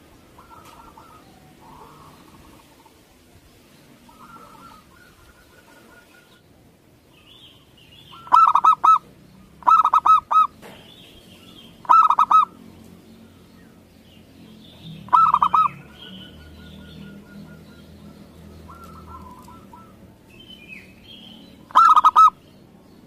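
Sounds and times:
dove cooing: 0.0s - 3.3s, 3.9s - 6.4s, 8.1s - 12.6s, 14.9s - 22.4s
high bird chirps: 7.1s - 12.6s, 13.2s - 23.0s.

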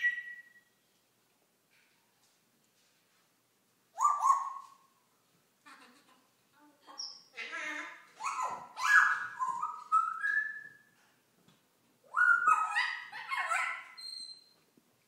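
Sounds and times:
parrot calling: 0.0s - 0.6s, 4.0s - 4.9s, 7.0s - 10.9s, 12.1s - 14.6s.

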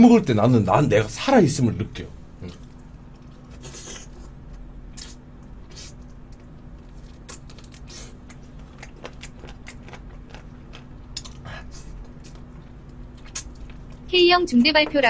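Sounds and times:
person eating with wet smacks: 2.4s - 14.1s.

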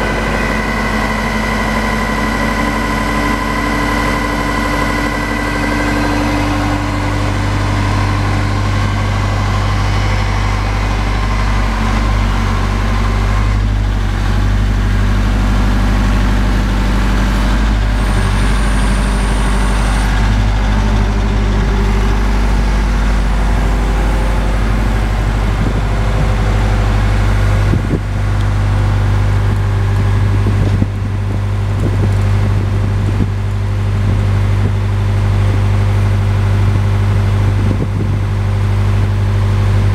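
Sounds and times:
drill rig engine humming: 0.0s - 39.9s.

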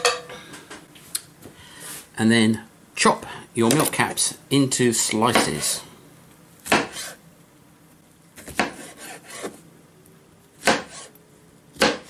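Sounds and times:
knife slicing mushrooms on board: 6.7s - 7.2s, 8.4s - 9.6s, 10.6s - 11.1s, 11.8s - 12.0s.

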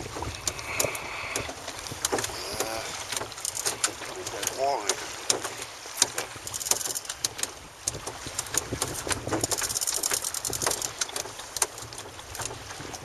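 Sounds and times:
wind and sea rumble: 0.0s - 13.0s
fishing reel clicking: 6.5s - 7.4s, 9.4s - 11.7s.

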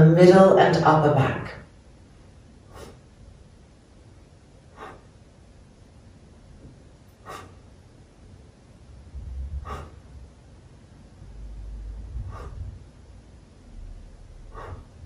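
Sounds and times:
faint human breaths: 2.6s - 3.2s, 4.6s - 5.2s, 7.1s - 7.7s, 9.2s - 10.3s, 11.6s - 13.0s, 14.2s - 15.0s
soft low rumble: 6.3s - 15.0s.

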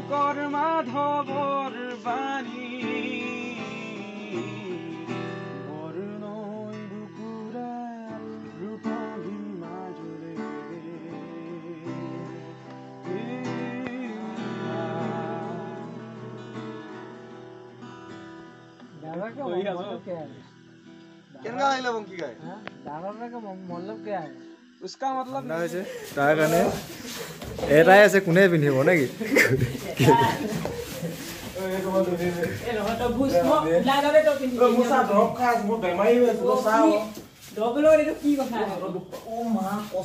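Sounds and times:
man singing: 0.0s - 16.4s
acoustic guitar strumming: 0.0s - 40.0s.

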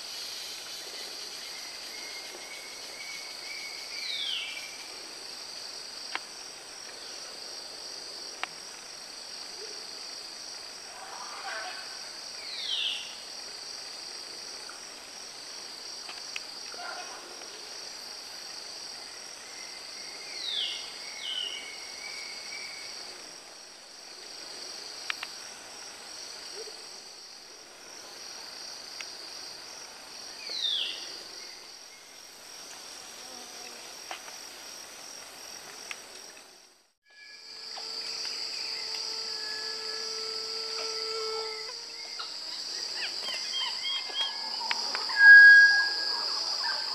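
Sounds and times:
insect chorus pulsing: 0.0s - 46.9s
falling whistled calls: 43.5s - 46.9s
steady whistled tones: 44.2s - 46.9s.

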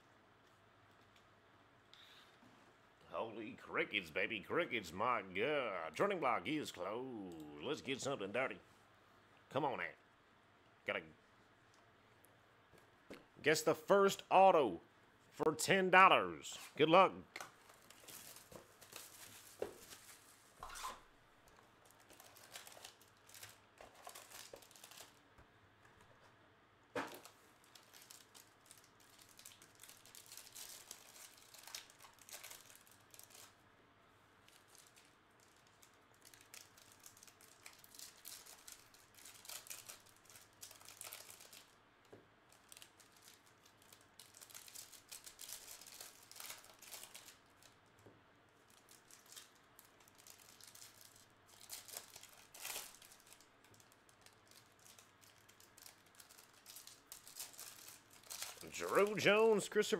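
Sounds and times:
plastic wrappers crinkling: 17.4s - 25.4s, 27.0s - 33.6s, 34.4s - 59.8s.

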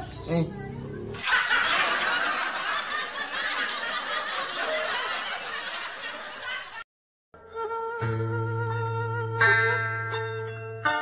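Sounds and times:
canned crowd laughter: 1.2s - 6.8s.

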